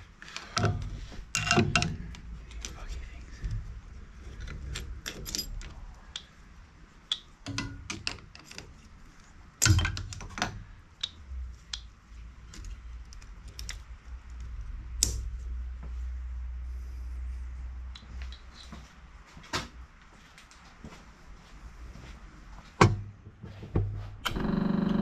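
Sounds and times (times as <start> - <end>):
low steady hum: 0.0 - 19.3
tool clicking on metal parts: 0.2 - 2.9, 4.3 - 6.3, 7.1 - 9.0, 9.6 - 15.4.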